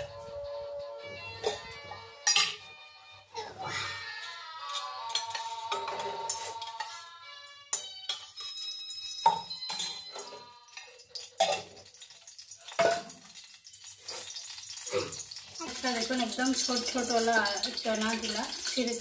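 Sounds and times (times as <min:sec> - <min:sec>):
steel vessels knocking and clinking: 0:01.5 - 0:02.7, 0:04.7 - 0:06.9, 0:07.7 - 0:19.0.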